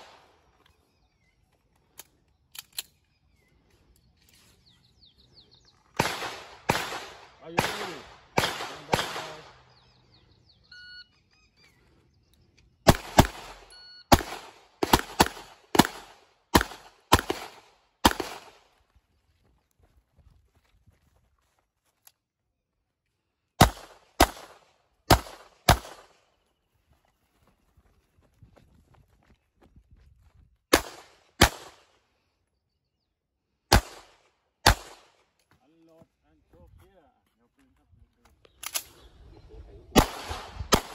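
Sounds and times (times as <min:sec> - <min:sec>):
pistol shots: 0:06.0 - 0:09.7, 0:12.8 - 0:18.6, 0:23.6 - 0:26.2, 0:30.7 - 0:31.9, 0:33.7 - 0:35.2, 0:39.9 - 0:40.9
short electronic beep: 0:10.6 - 0:11.6.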